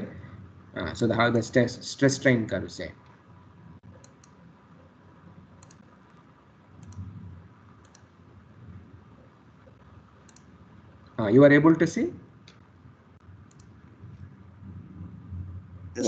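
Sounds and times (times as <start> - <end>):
computer mouse double-clicks: 5.6 - 5.9, 6.8 - 7.1, 7.8 - 8.1.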